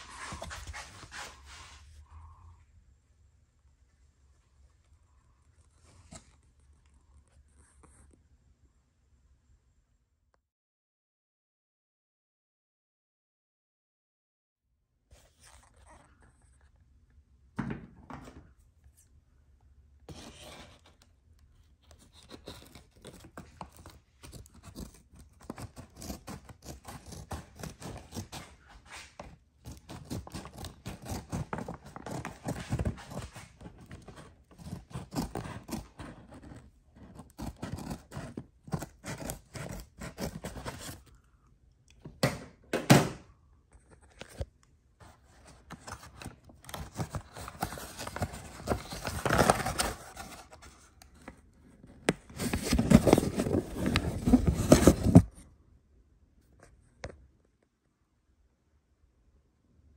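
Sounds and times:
packaging scraping and rustling: 21.9s - 41.1s, 45.0s - 51.4s, 52.0s - 55.4s.

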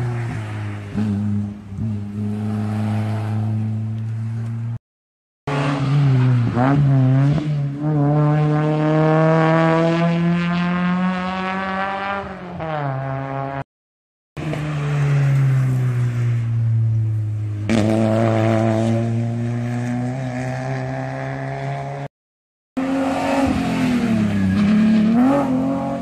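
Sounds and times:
rally car engine revving: 5.5s - 13.6s, 16.8s - 22.1s, 22.8s - 26.0s.

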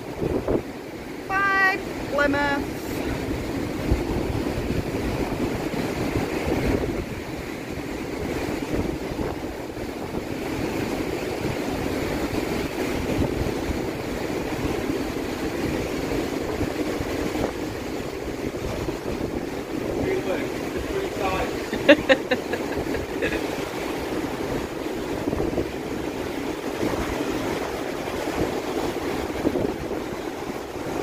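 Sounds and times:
rushing seawater in ship wake: 0.0s - 31.0s
wind on microphone: 0.0s - 31.0s.

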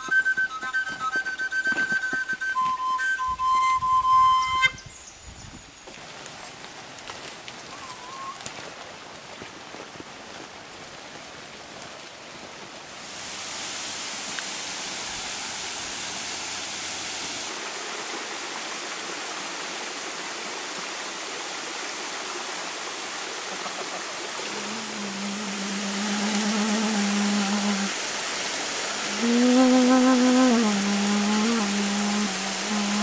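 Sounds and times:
wooden flute low notes: 0.0s - 5.0s
small waterfall rushing: 5.2s - 33.0s.

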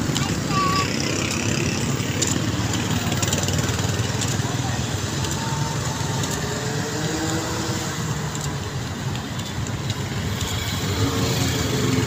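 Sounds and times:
car and motorbike engines: 0.0s - 12.0s.

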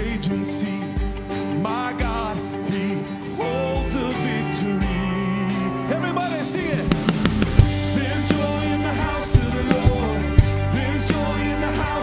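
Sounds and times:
man singing lead vocals: 0.0s - 12.0s
worship band playing: 0.0s - 12.0s
sharp drum hits: 6.9s - 8.5s.

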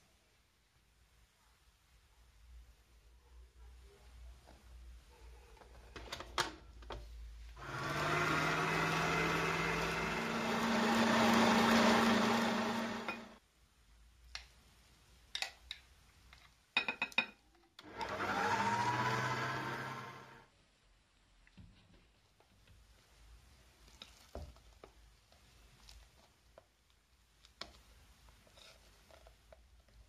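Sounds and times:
stand mixer motor whisking: 7.6s - 13.4s, 17.8s - 20.4s.

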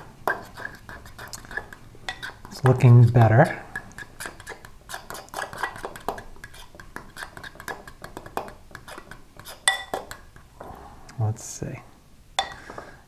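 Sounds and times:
fork scraping glass bowl: 0.0s - 10.2s
glass clink: 9.7s - 10.0s, 12.4s - 12.6s.

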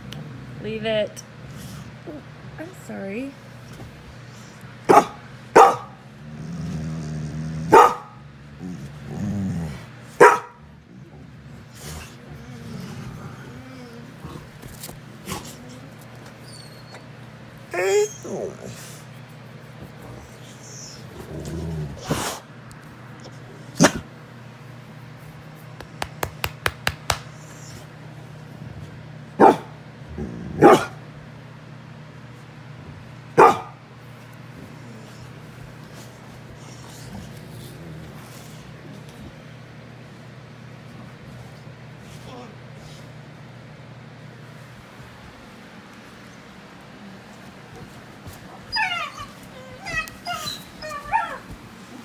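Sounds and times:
dog growling: 0.0s - 2.6s, 5.8s - 16.8s, 17.7s - 19.0s, 19.9s - 22.5s, 28.4s - 31.1s, 36.4s - 39.2s
dog barking: 4.9s - 6.0s, 7.7s - 8.2s, 10.2s - 10.6s, 29.4s - 29.8s, 30.6s - 31.0s, 33.4s - 33.8s.

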